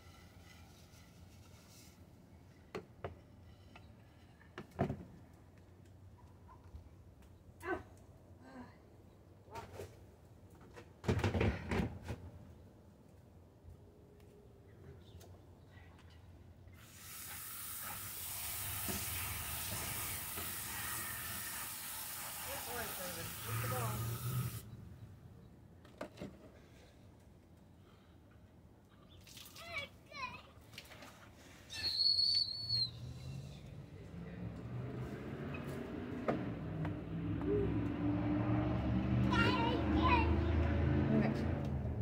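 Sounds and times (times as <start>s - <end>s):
water spraying into a dish: 16.8s - 24.7s.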